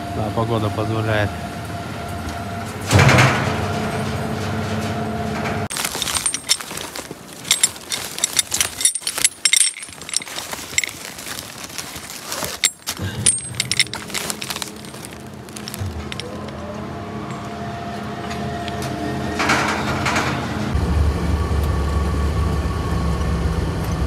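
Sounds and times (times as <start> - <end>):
crane humming: 0.0 - 5.7, 13.0 - 24.0
steel chains rattling and clinking: 5.7 - 16.5.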